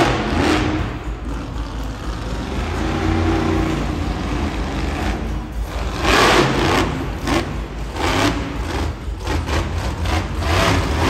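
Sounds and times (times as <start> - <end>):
monster truck engine revving: 0.0 - 11.0.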